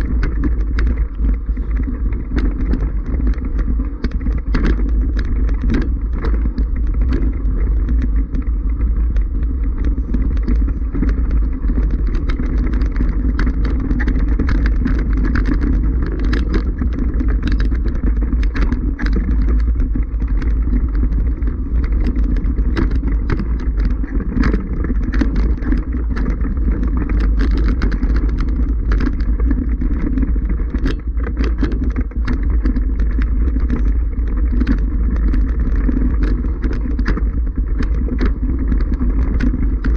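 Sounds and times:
bike rattling over stones: 0.0 - 39.9
wind rumble on microphone: 0.0 - 39.9.

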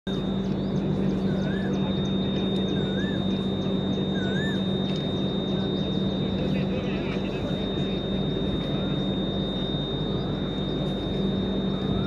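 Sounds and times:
electric train hum and whine: 0.1 - 12.0
bird whistling: 0.6 - 6.0.

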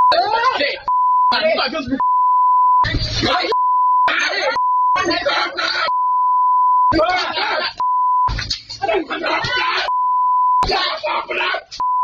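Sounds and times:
men arguing loudly: 0.1 - 2.0, 3.0 - 6.0, 6.9 - 7.8, 8.8 - 10.0, 10.6 - 11.8
censor bleep: 2.0 - 2.9, 3.5 - 5.1, 5.9 - 7.0, 7.8 - 8.3, 9.9 - 10.6.

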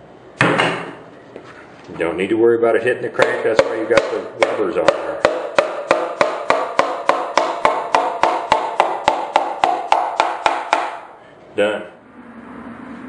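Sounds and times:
hammer handle tapping on metal: 3.2 - 10.9.

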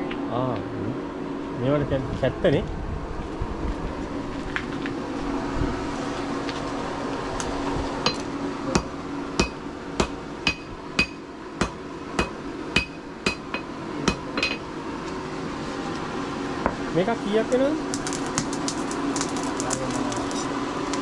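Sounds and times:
hammer striking metal on anvil: 8.0 - 14.6.

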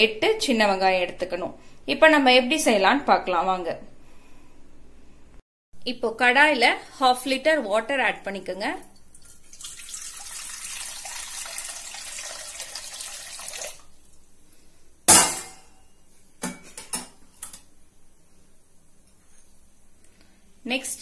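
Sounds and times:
water pouring into metal pan: 8.9 - 13.9.

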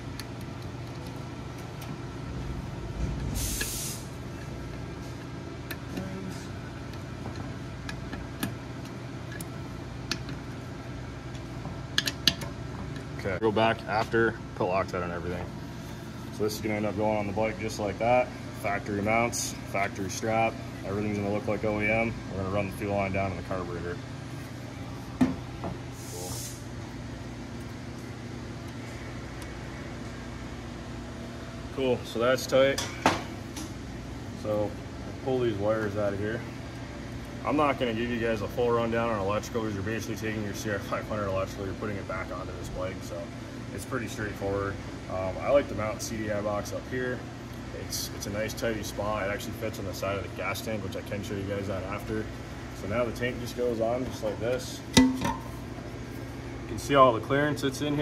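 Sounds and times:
workshop hum: 0.0 - 58.0
short hiss: 3.4 - 4.1, 26.0 - 26.6
metal clicks and taps: 11.3 - 13.1.

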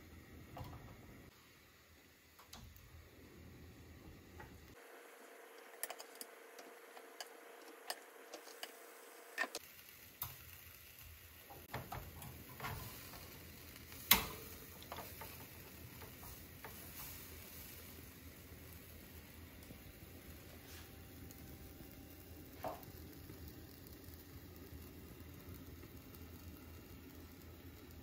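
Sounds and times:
faint sizzle: 0.0 - 28.0
metal tongs clicking on grill basket: 11.7 - 17.2.

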